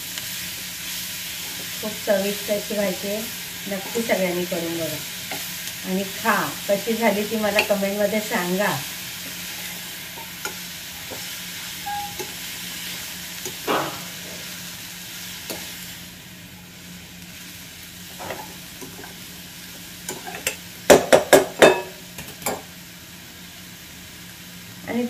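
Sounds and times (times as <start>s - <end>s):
faint sizzle: 0.0s - 25.0s
spoon scraping metal pan: 9.6s - 12.4s
spoon clinking against pan: 11.8s - 12.4s.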